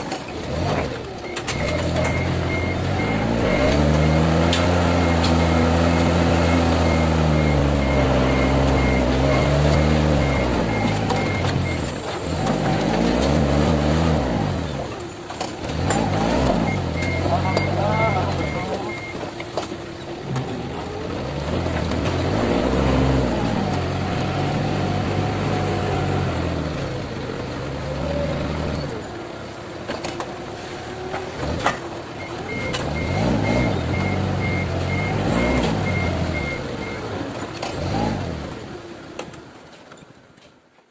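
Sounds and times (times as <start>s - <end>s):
forklift engine revving: 0.0s - 39.1s
high warning beeper: 16.6s - 19.2s.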